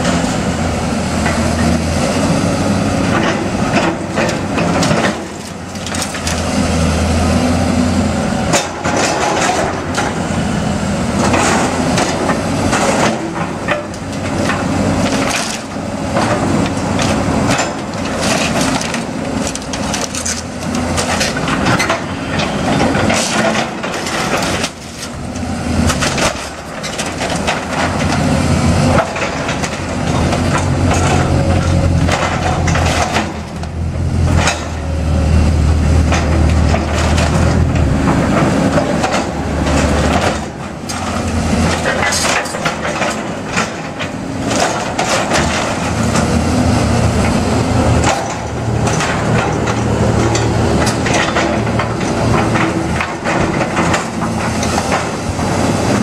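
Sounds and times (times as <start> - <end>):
excavator diesel engine: 0.0 - 56.0
timber cracking and crashing: 3.2 - 6.6, 14.4 - 22.0.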